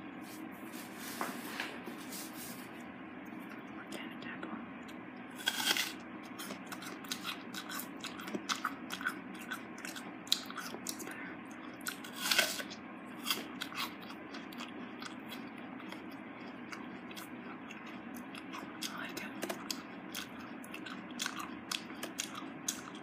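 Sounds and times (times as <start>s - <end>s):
apple crunching while chewed: 4.9s - 23.0s
loud apple bite: 5.4s - 11.0s, 11.8s - 15.2s.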